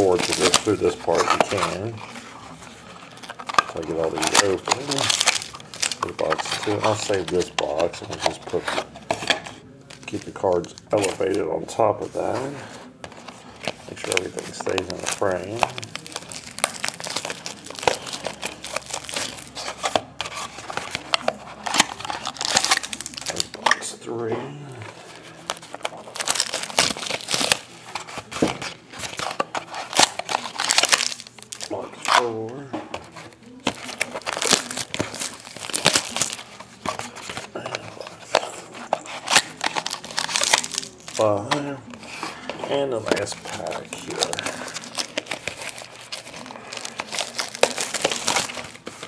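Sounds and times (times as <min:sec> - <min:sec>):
foil wrappers crinkling and tearing: 0:00.0 - 0:24.0, 0:24.8 - 0:49.0
cardboard box tearing: 0:03.2 - 0:08.9, 0:43.1 - 0:49.0.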